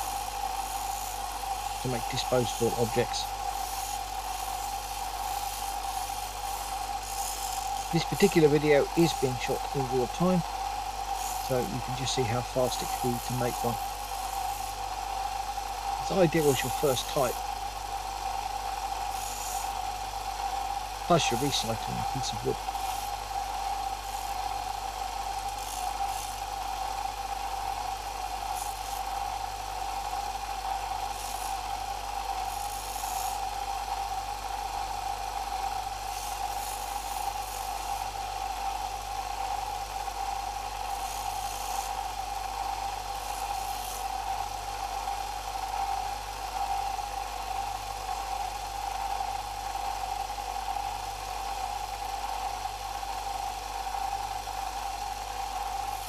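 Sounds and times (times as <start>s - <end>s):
wooden stick scratching on sanding belt: 0.0s - 10.5s, 11.1s - 14.8s, 16.0s - 17.5s, 19.1s - 19.8s, 21.1s - 23.2s, 25.5s - 26.4s, 28.5s - 29.2s, 31.0s - 31.6s, 32.4s - 33.4s, 35.6s - 38.1s, 40.8s - 42.0s, 43.2s - 44.5s
belt sander motor running: 0.0s - 56.0s.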